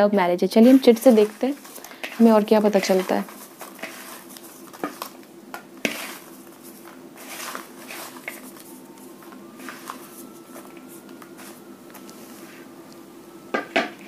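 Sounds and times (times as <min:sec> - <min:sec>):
paper slips rustling: 0:00.6 - 0:05.2.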